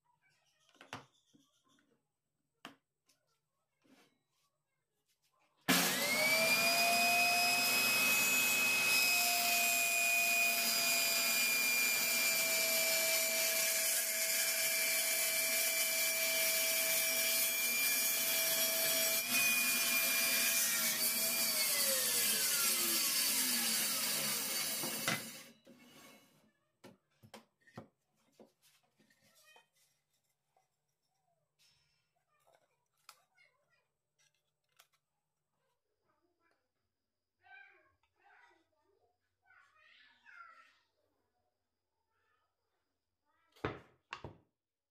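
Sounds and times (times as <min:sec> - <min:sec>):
table saw whine: 0:05.7 - 0:26.2.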